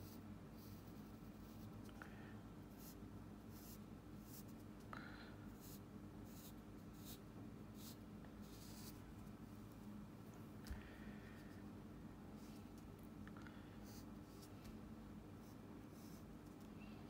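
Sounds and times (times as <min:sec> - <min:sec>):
pencil scratching on paper: 0:02.8 - 0:04.6, 0:05.6 - 0:07.2, 0:07.8 - 0:09.0, 0:15.4 - 0:16.3.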